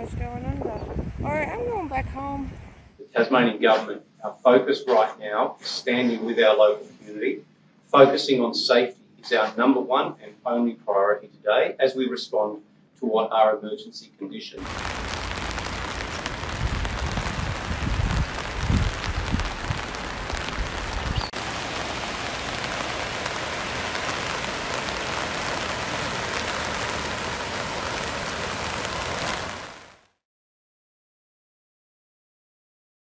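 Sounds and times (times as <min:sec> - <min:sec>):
low rumbling bumps: 0:00.0 - 0:02.8, 0:14.6 - 0:23.9
heavy rain hissing: 0:14.6 - 0:30.0.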